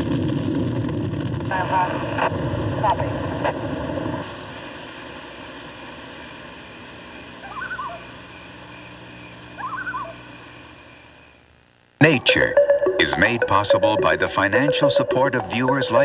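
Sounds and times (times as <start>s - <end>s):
steady high-pitched whine: 1.4s - 16.0s
animal calling with falling notes: 7.4s - 8.1s, 9.6s - 10.3s.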